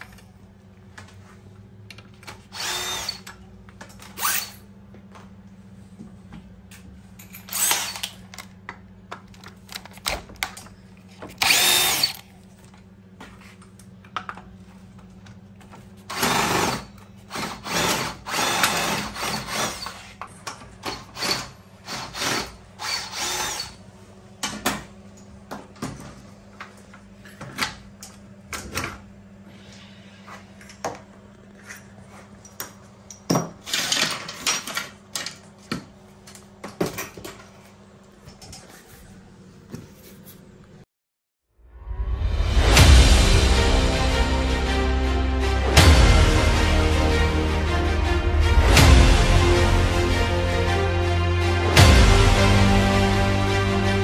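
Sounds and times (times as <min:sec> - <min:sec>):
cordless drill bursts: 0:02.5 - 0:03.3, 0:04.1 - 0:04.6, 0:07.5 - 0:08.2, 0:11.4 - 0:12.2, 0:16.1 - 0:20.0, 0:21.2 - 0:23.8.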